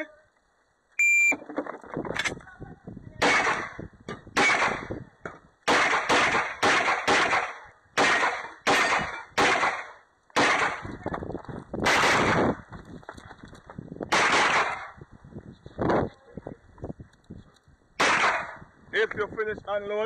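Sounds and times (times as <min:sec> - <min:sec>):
pistol shots: 0:03.2 - 0:03.8, 0:04.4 - 0:05.0, 0:05.6 - 0:10.9, 0:11.8 - 0:12.5, 0:14.1 - 0:15.0, 0:18.0 - 0:18.6.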